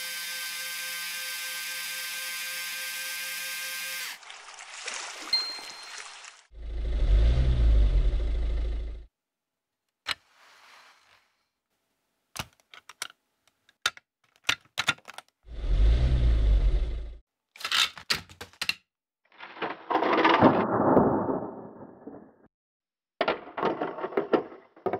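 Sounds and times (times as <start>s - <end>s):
plastic bricks clicking: 12.4s - 15.4s, 17.6s - 18.8s.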